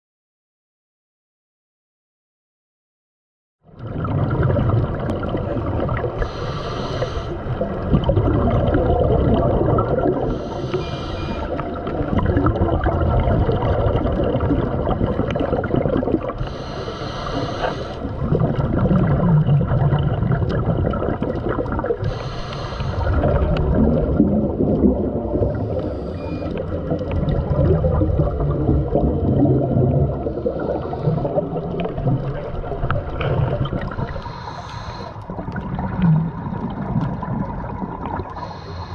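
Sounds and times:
exhaust bubbles underwater: 0:03.6 - 0:38.9
scuba regulator inhalation hiss: 0:06.2 - 0:07.5, 0:10.3 - 0:11.6, 0:16.4 - 0:18.2, 0:22.0 - 0:23.2, 0:25.6 - 0:26.5, 0:34.0 - 0:35.2, 0:38.4 - 0:38.9.

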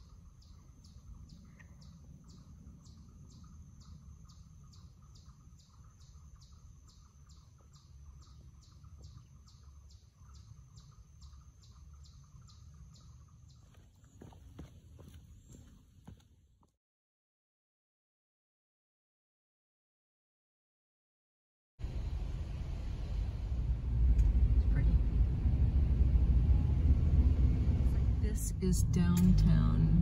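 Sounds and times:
insect chirping: 0:00.0 - 0:15.9
low rumble: 0:21.8 - 0:30.0.

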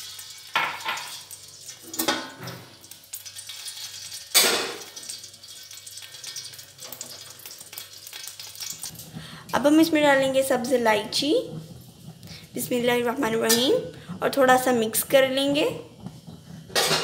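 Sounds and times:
metal pot and utensils clattering: 0:00.0 - 0:09.1, 0:13.3 - 0:13.9, 0:16.0 - 0:17.0.

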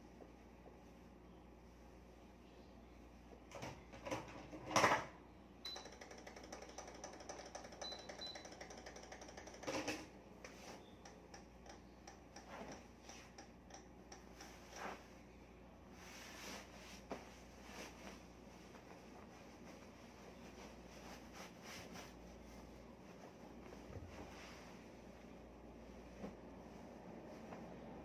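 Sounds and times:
pillowcases rustling: 0:15.9 - 0:28.0.

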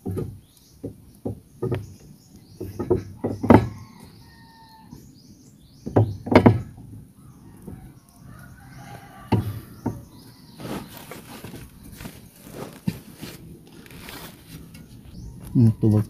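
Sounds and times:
metal knocks and clunks: 0:02.6 - 0:03.8, 0:05.8 - 0:06.9.

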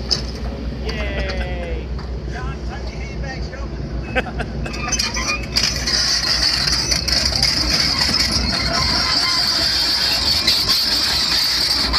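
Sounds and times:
diesel engine rumble: 0:00.0 - 0:11.9
high-pitched metal squeal: 0:04.6 - 0:11.9.

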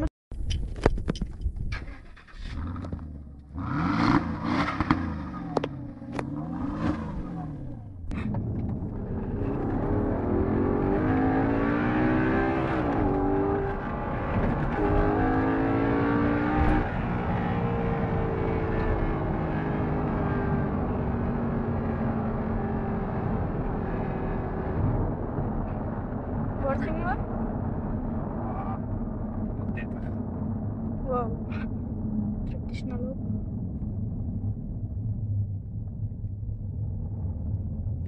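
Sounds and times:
car engine accelerating from inside: 0:02.5 - 0:38.0
car engine revving hard: 0:02.6 - 0:08.3, 0:09.0 - 0:24.8.

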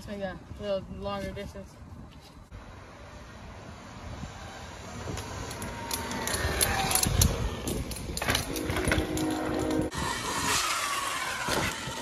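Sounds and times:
tyres rolling on pavement: 0:02.6 - 0:12.0
electric motor whine: 0:04.6 - 0:12.0.

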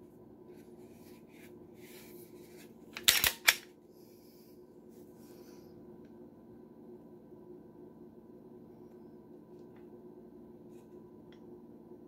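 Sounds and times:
pistol slide metallic clacks: 0:03.0 - 0:03.7.

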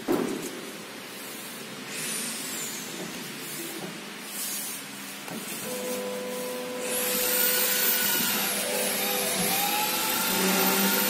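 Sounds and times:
cnc router hissing: 0:05.6 - 0:11.0.

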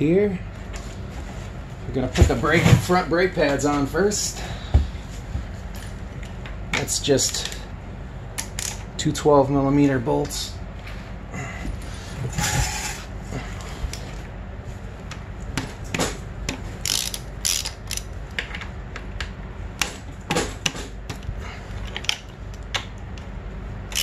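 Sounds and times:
socket ratchet clicking: 0:16.8 - 0:18.1.

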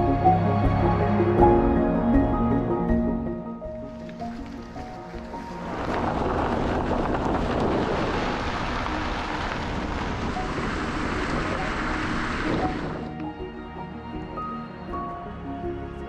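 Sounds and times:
wind rushing over microphone: 0:04.2 - 0:13.6.

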